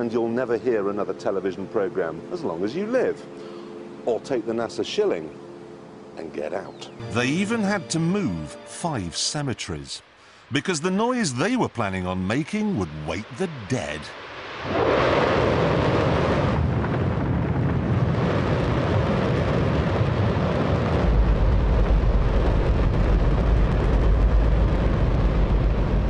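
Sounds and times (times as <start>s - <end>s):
rocket engine roaring: 7.0s - 26.0s
deep rumble: 14.6s - 26.0s.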